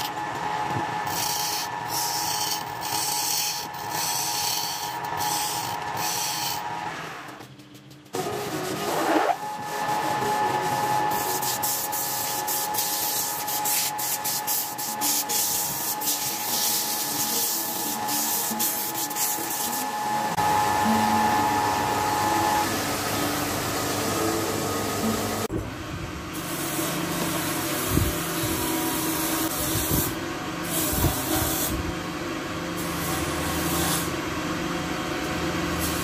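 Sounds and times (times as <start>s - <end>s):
lathe motor whine: 0.0s - 7.4s, 8.2s - 25.8s
hand sanding hiss: 9.7s - 19.9s.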